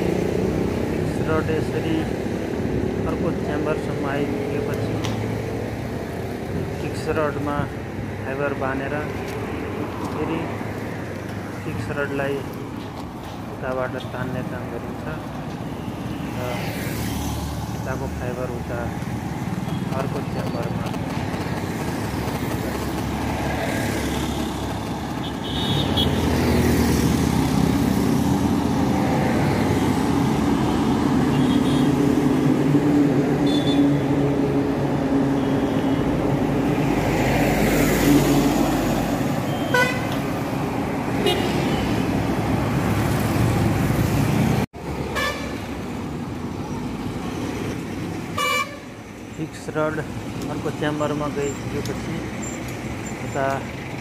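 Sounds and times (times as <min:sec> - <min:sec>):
road traffic rumble: 0:00.0 - 0:54.0
car horns beeping: 0:25.2 - 0:26.3, 0:33.4 - 0:34.0, 0:39.4 - 0:40.3, 0:41.2 - 0:42.1, 0:45.1 - 0:45.6, 0:48.3 - 0:48.9.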